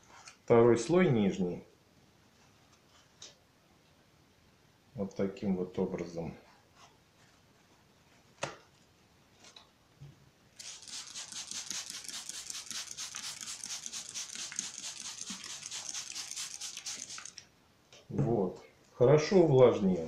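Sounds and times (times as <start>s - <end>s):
spray bottle squirting: 10.6s - 17.4s.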